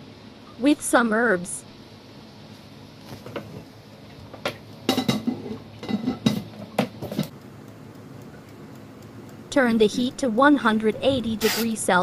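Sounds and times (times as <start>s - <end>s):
cookware clattering: 4.9s - 6.5s.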